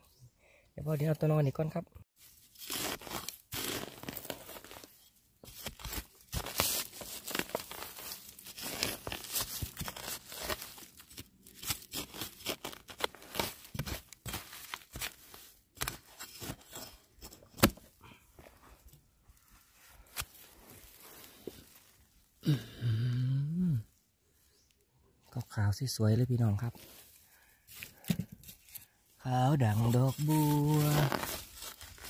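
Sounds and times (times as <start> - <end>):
metal blade chopping into soil: 15.8 - 17.8.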